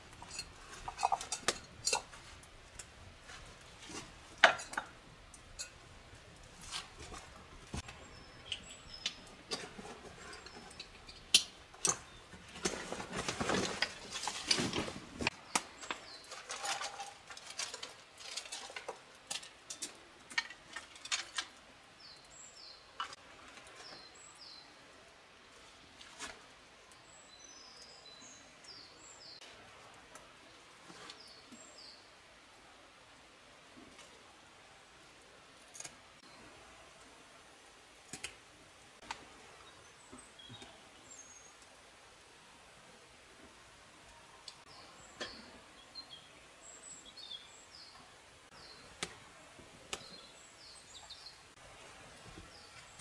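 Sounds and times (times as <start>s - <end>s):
campfire crackling: 0.0s - 28.0s, 36.9s - 41.9s
rustling of gear: 12.4s - 15.3s.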